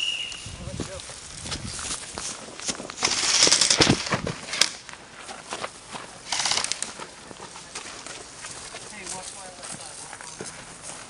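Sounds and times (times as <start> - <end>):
airsoft rifles firing: 6.3 - 6.9.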